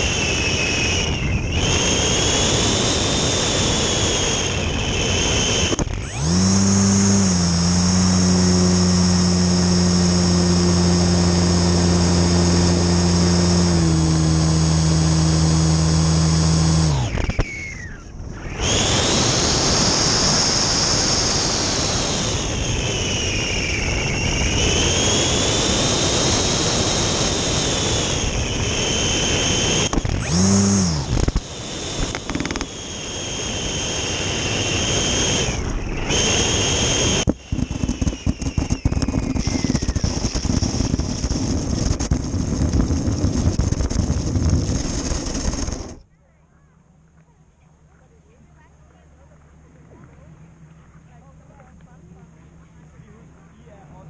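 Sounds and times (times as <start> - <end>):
model plane motor whining: 0.0 - 46.0
plane scraping along ice: 0.0 - 46.0
rushing air: 13.8 - 46.0.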